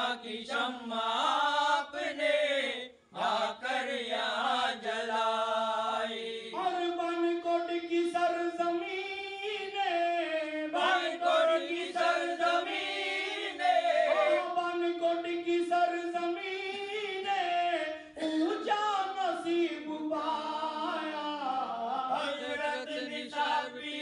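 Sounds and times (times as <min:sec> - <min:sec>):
man singing into microphone: 0:13.6 - 0:24.0
second voice singing: 0:13.8 - 0:14.7.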